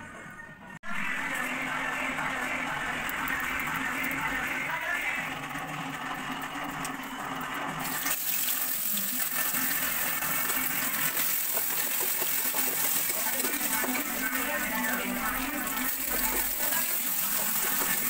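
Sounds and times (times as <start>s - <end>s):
fish sizzling in hot oil: 7.8s - 18.0s.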